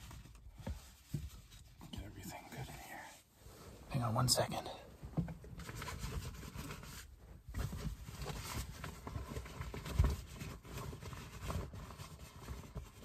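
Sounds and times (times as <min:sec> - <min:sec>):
tent fabric rustling and knocking: 0:05.1 - 0:13.0.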